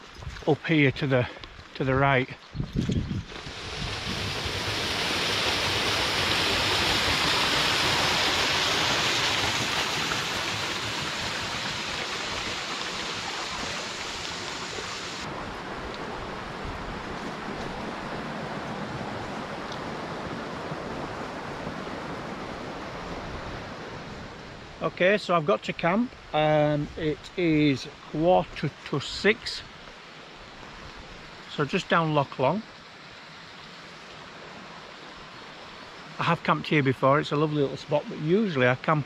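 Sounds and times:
waterfall splashing over rocks: 0:03.3 - 0:16.1.

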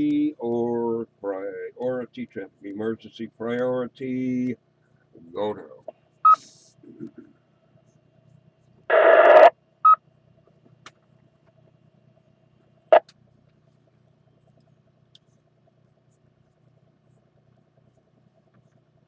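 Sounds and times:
burst of garbled radio noise: 0:08.9 - 0:09.5
radio repeater beep: 0:08.9 - 0:10.0.

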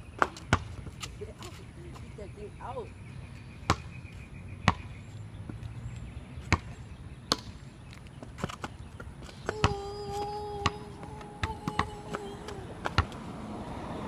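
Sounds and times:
basketball bouncing on concrete: 0:00.2 - 0:02.2, 0:03.6 - 0:03.9, 0:04.6 - 0:05.7, 0:06.4 - 0:07.6, 0:08.3 - 0:13.2.

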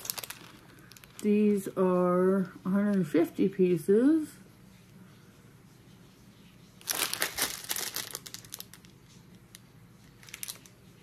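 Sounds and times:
plastic bag crinkling: 0:00.0 - 0:01.8, 0:06.8 - 0:11.0.

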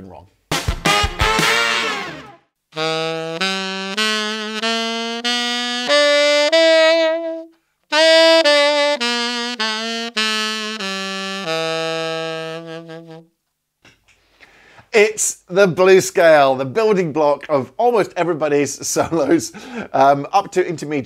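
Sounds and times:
tenor saxophone playing scale: 0:00.5 - 0:13.3
player breathing: 0:14.2 - 0:14.9, 0:19.5 - 0:19.9.

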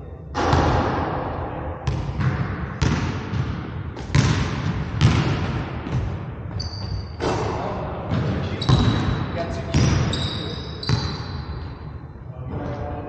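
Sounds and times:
basketball bouncing on hardwood: 0:01.9 - 0:07.0
sneaker squeak on floor: 0:06.5 - 0:07.2, 0:08.6 - 0:09.1, 0:09.7 - 0:11.7.

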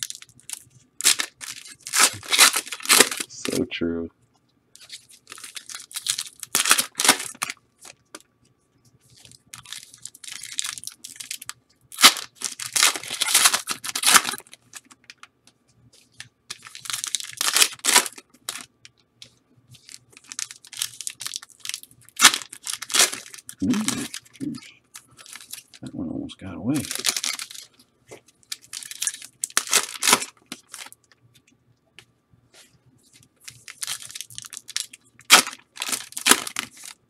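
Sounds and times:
foil wrappers tearing and crinkling: 0:00.0 - 0:03.6, 0:04.8 - 0:08.0, 0:09.1 - 0:15.3, 0:16.2 - 0:18.7, 0:19.8 - 0:25.8, 0:26.8 - 0:27.8, 0:28.4 - 0:31.0, 0:33.4 - 0:37.0.

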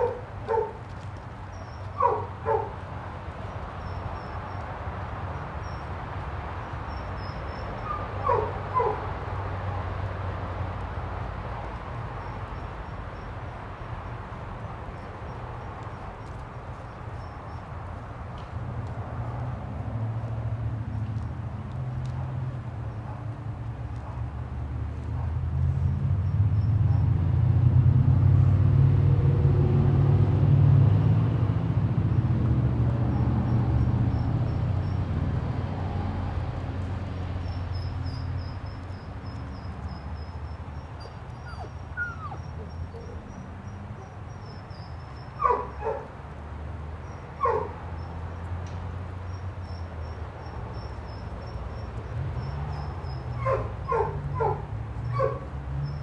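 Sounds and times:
dog yipping: 0:00.0 - 0:00.8, 0:02.0 - 0:02.7, 0:07.8 - 0:09.0, 0:41.0 - 0:43.4, 0:45.4 - 0:46.1, 0:47.4 - 0:47.7, 0:53.4 - 0:55.4.

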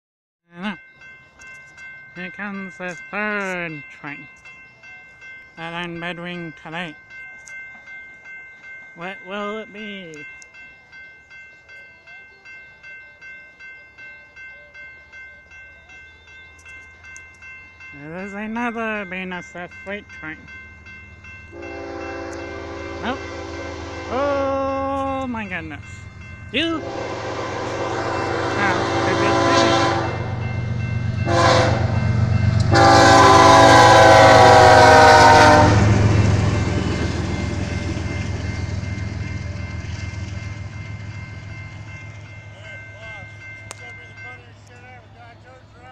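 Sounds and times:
railroad crossing bell ringing: 0:00.5 - 0:45.9
low rumble of passing train: 0:00.8 - 0:45.9
locomotive air horn blasts: 0:21.5 - 0:24.5, 0:26.8 - 0:30.2, 0:31.2 - 0:32.0, 0:32.6 - 0:36.0.

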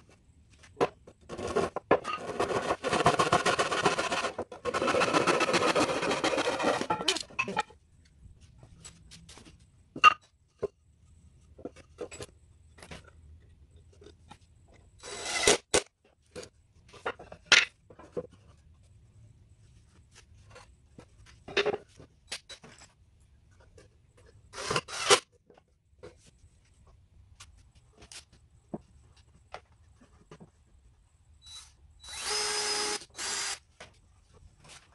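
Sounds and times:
wooden boards scraping: 0:00.8 - 0:07.6.

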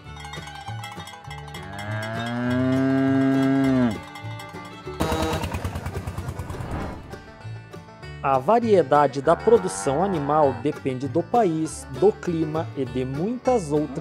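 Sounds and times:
background music: 0:00.0 - 0:14.0
cow mooing: 0:01.6 - 0:04.1, 0:09.1 - 0:10.8
tractor engine pulsing: 0:04.1 - 0:07.5.

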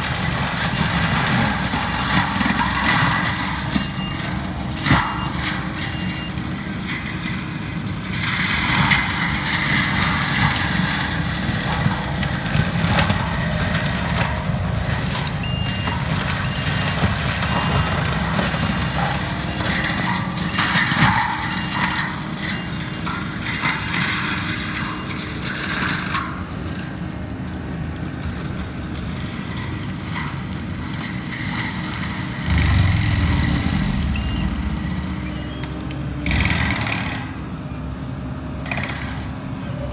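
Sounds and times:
diesel engine at high throttle: 0:00.0 - 0:24.9, 0:26.7 - 0:39.9
mulcher shredding brush: 0:00.0 - 0:39.9
reversing alarm beeping: 0:03.6 - 0:06.4, 0:15.2 - 0:20.6, 0:32.4 - 0:36.4.

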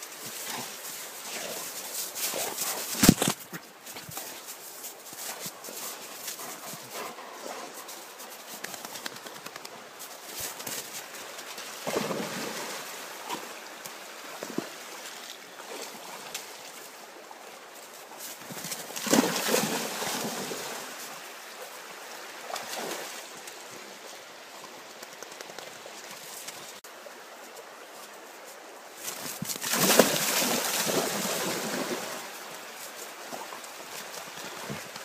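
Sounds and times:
stream water running: 0:00.0 - 0:35.0
dog splashing in water: 0:29.5 - 0:32.1.

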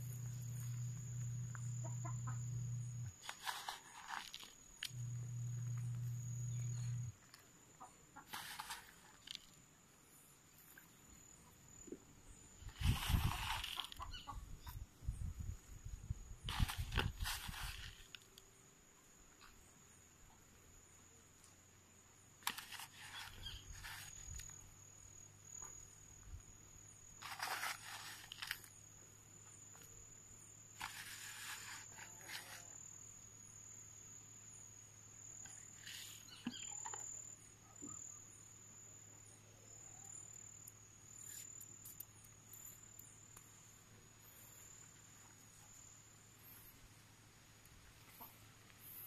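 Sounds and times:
high-pitched insect trill: 0:00.0 - 0:09.6, 0:10.5 - 0:20.1, 0:22.0 - 0:47.1.

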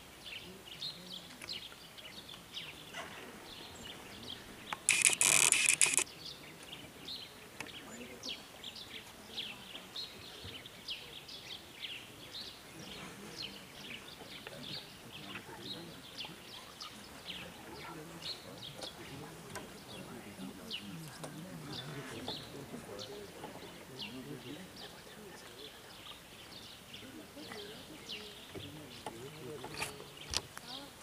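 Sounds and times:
small birds chirping: 0:00.0 - 0:31.0
harsh rapid clicking: 0:04.7 - 0:06.0.

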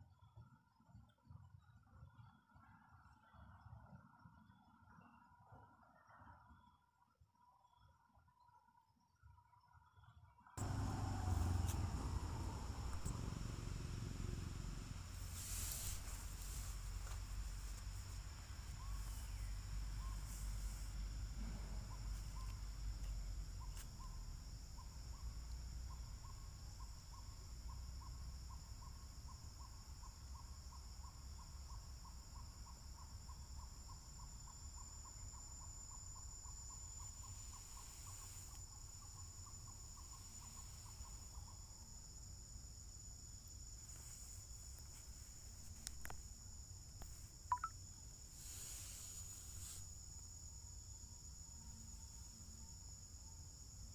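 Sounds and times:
insects droning high-pitched: 0:07.4 - 0:53.9
low rumble: 0:10.6 - 0:22.9.

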